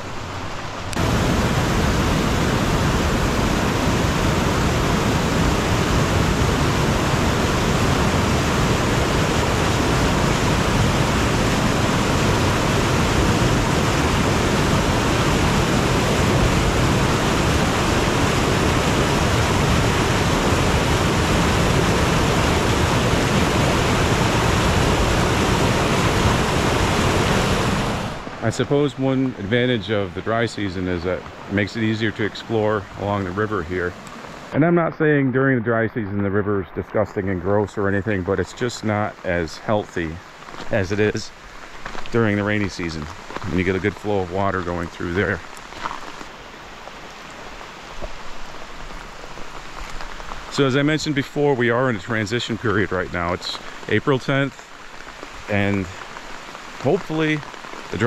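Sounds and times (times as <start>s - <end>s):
river rushing over rocks: 0.0s - 35.1s.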